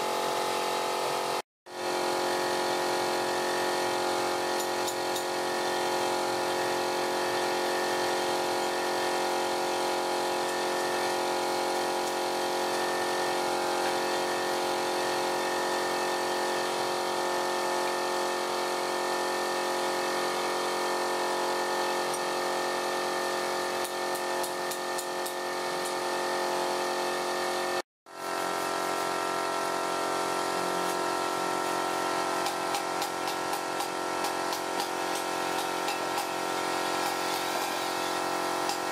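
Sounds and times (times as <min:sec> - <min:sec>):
electric drill boring into wood: 0:33.5 - 0:38.9.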